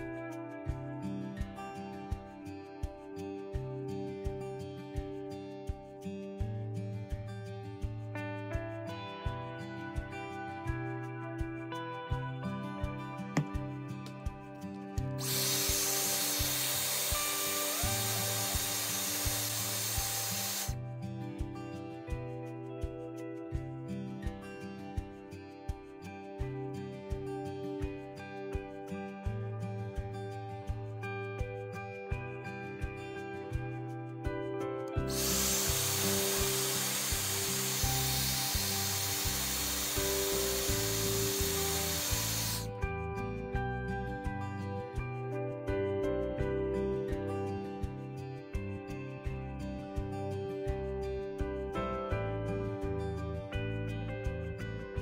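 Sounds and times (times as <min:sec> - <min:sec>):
background music with beat: 0:00.0 - 0:55.0
hair dryer blowing: 0:15.2 - 0:20.8, 0:35.1 - 0:42.7.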